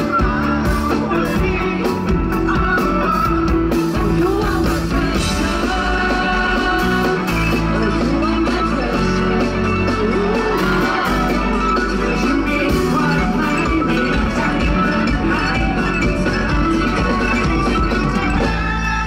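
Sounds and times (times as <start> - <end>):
live pop-rock band: 0.0 - 19.0
man singing: 0.0 - 19.0.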